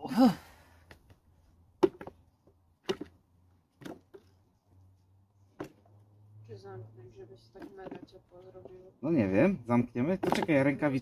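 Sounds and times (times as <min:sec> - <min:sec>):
potatoes knocking into plastic pot: 0:01.8 - 0:02.2, 0:02.8 - 0:03.2, 0:10.2 - 0:10.8.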